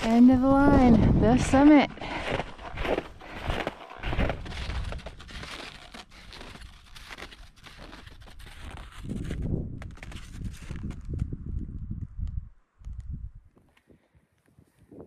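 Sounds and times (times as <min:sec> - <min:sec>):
snowshoes crunching on snow: 0:00.0 - 0:11.0
trekking poles clicking: 0:02.1 - 0:09.4.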